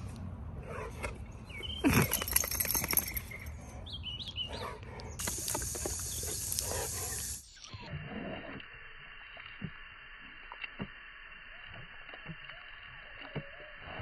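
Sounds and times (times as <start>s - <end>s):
garden hose spraying water: 5.2s - 7.8s.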